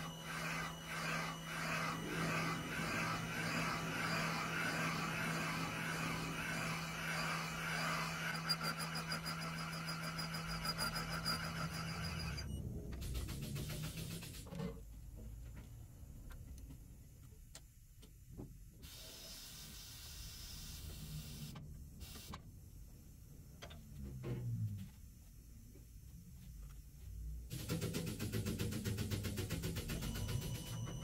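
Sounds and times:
motor running with steady whine: 0:00.0 - 0:12.6
hiss: 0:00.3 - 0:08.3, 0:13.0 - 0:14.5, 0:27.5 - 0:30.8.

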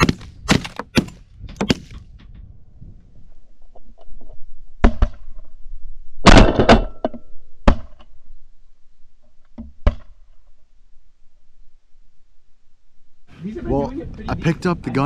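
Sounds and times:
shotgun shots: 0:00.0 - 0:02.0, 0:06.3 - 0:06.8.

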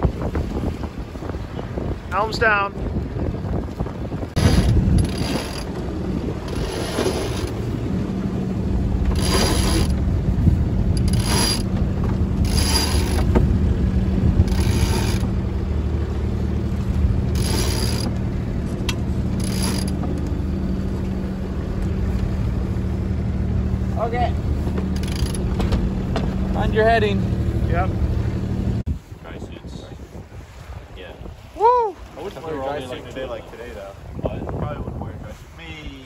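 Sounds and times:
winch ratcheting: 0:04.4 - 0:05.8, 0:06.4 - 0:07.6, 0:09.0 - 0:10.0, 0:10.9 - 0:13.5, 0:14.4 - 0:15.4, 0:17.3 - 0:20.4, 0:24.8 - 0:25.8.

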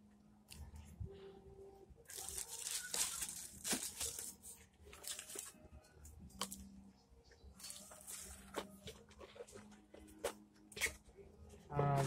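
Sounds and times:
plastic bag crinkling: 0:02.1 - 0:05.5.

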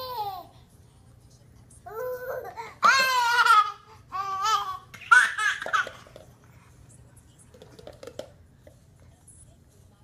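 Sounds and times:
baby laughing: 0:02.0 - 0:06.2.

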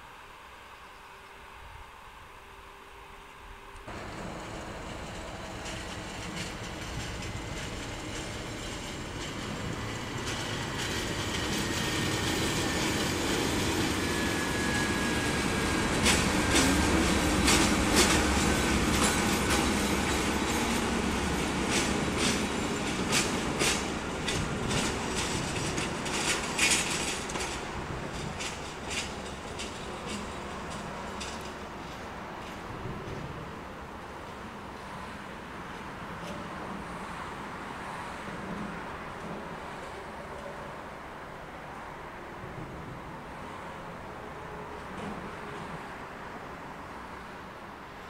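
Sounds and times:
diesel locomotive passing: 0:02.7 - 0:48.0
wheels clicking over rail joints: 0:03.8 - 0:14.2, 0:15.0 - 0:33.4.

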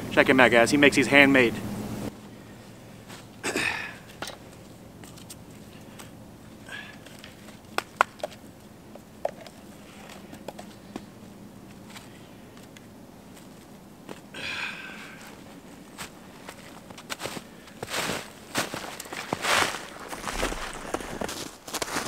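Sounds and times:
footsteps crunching snow: 0:15.2 - 0:22.0.

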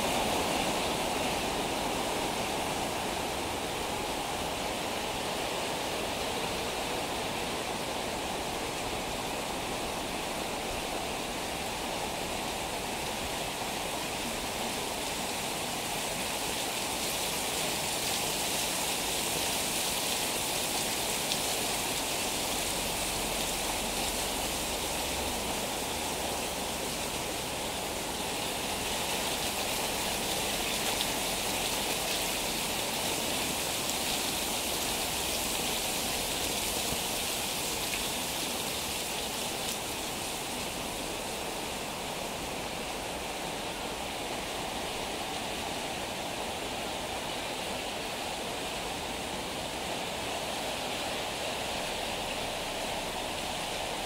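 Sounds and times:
heavy rain on street and roofs: 0:00.0 - 0:54.0.

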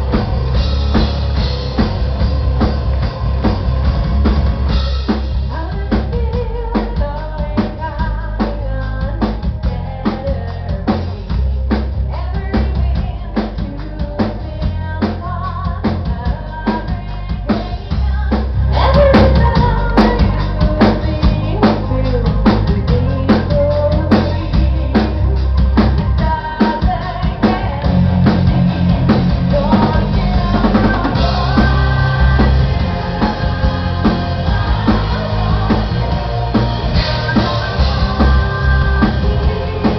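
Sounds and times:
rapid drum hits: 0:00.0 - 0:06.3, 0:26.7 - 0:39.9
metal band playing live: 0:00.0 - 0:39.9
woman singing lead: 0:04.9 - 0:39.9.

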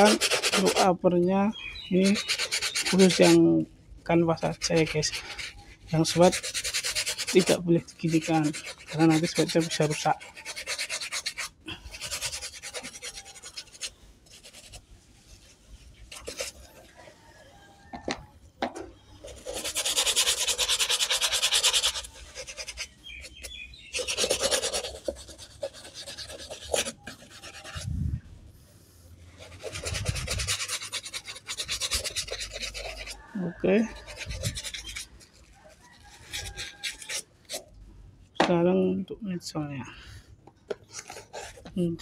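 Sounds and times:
brush scrubbing a sneaker: 0:00.0 - 0:01.0, 0:01.6 - 0:03.6, 0:04.3 - 0:17.7, 0:19.2 - 0:28.0, 0:29.2 - 0:37.7, 0:40.8 - 0:42.0.

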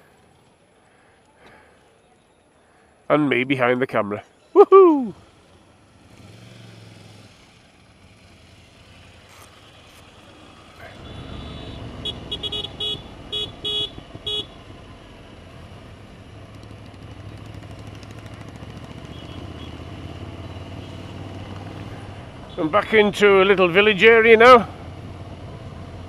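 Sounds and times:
road noise: 0:00.0 - 0:26.0
motorcycle engine: 0:05.2 - 0:26.0
vehicle horn toots: 0:10.8 - 0:14.6, 0:19.1 - 0:19.8.

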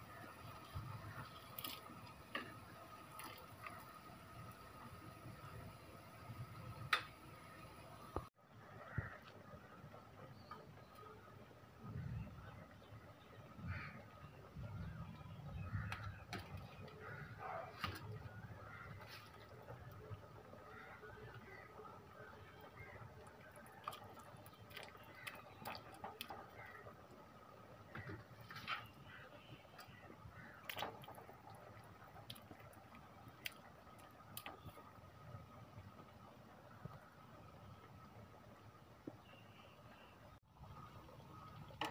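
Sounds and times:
broth bubbling at a boil: 0:00.0 - 0:41.9
faint bird calls: 0:11.8 - 0:31.5.

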